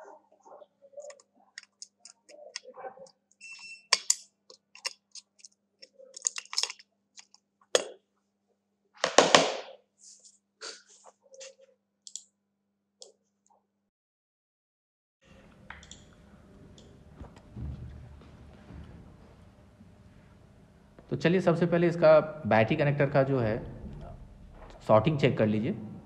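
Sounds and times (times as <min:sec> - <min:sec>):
hands clicking and tapping: 0:01.0 - 0:02.7.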